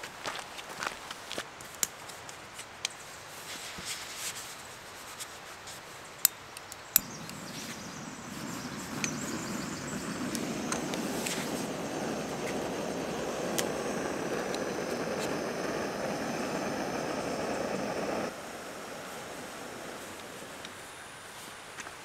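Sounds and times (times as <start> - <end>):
gas burner hissing: 7.0 - 21.3.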